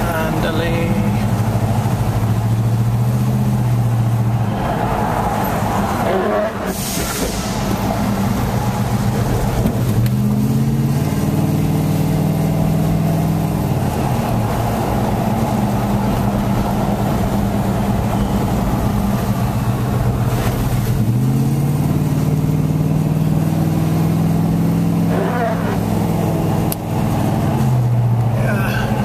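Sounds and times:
car engine: 0.0 - 29.0
tyres hissing on wet pavement: 6.6 - 8.2.

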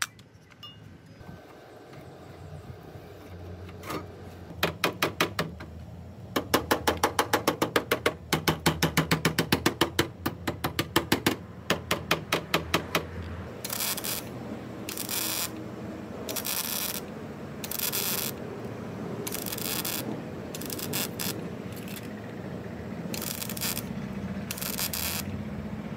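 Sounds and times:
hammer tapping on sheet steel: 6.3 - 13.1.

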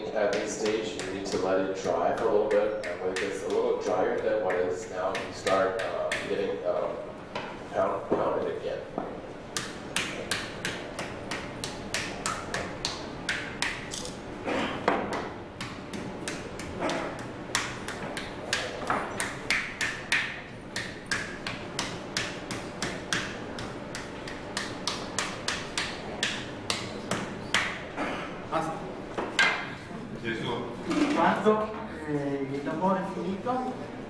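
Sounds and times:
wooden paddle slapping clay: 15.1 - 27.8.

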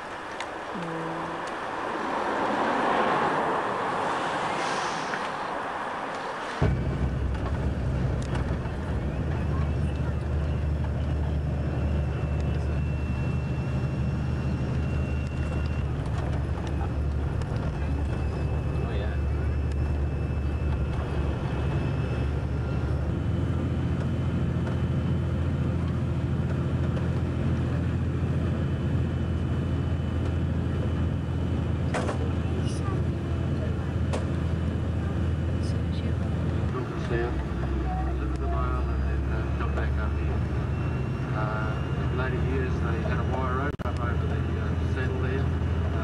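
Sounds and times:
bus engine drone: 0.0 - 46.0
road noise: 0.0 - 46.0
faint high whine: 6.6 - 24.3.

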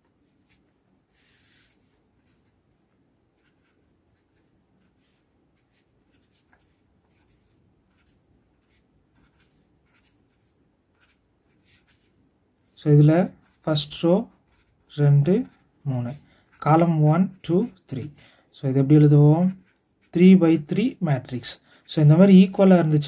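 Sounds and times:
pen scratching on paper: 0.2 - 2.5, 3.4 - 17.9.

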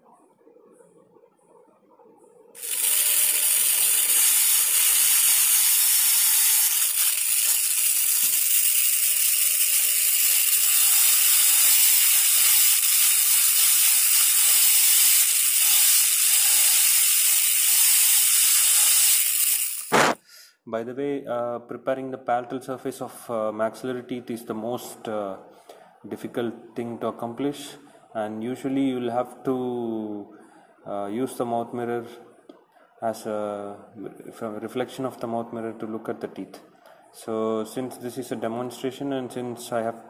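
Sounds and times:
dental drill high-pitched hiss: 2.6 - 20.2.

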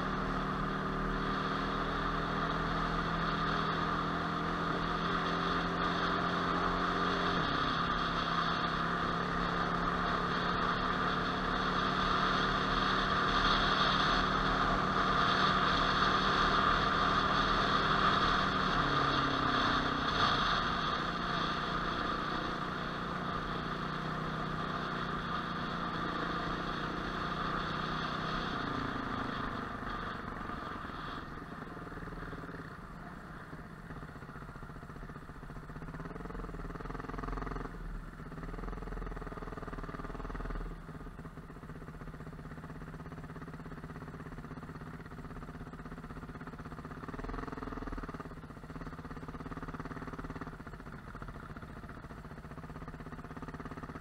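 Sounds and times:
off-road motorcycle engine: 0.0 - 54.0.

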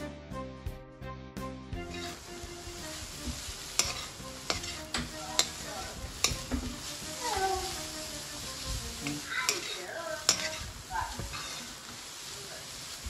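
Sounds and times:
vegetables sizzling in a pan: 1.8 - 13.0
metal spatula clinking on pan: 3.8 - 5.6, 9.0 - 10.7.

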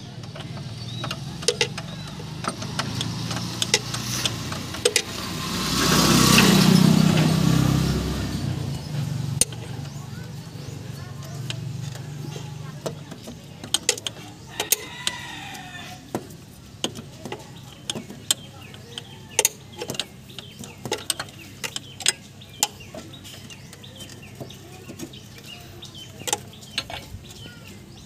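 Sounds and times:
socket wrench clicking: 0.2 - 5.2.

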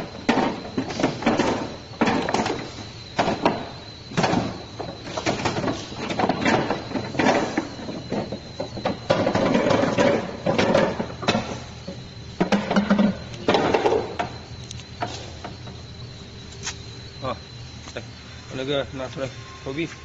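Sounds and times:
balls rolling rumble: 0.0 - 14.4.

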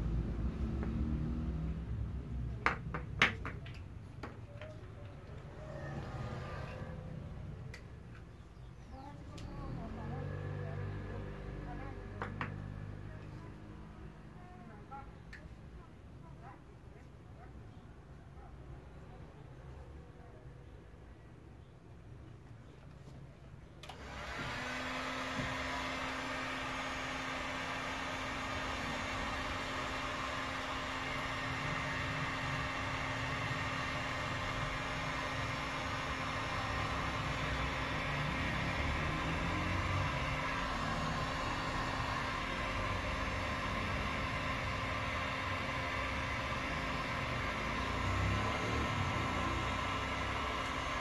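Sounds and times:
heat gun fan humming: 23.8 - 51.0.

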